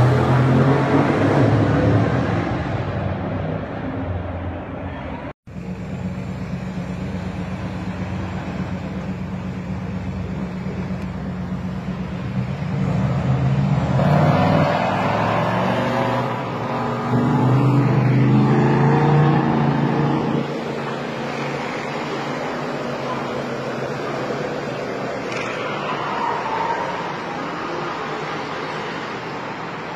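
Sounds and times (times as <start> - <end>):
cars and trucks driving past: 0.0 - 29.9.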